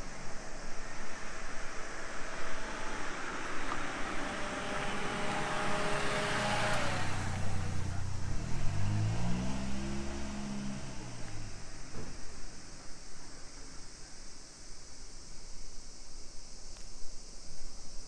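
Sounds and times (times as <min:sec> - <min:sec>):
car driving past: 0:00.0 - 0:12.7
vehicle engine pulling away: 0:00.0 - 0:13.2.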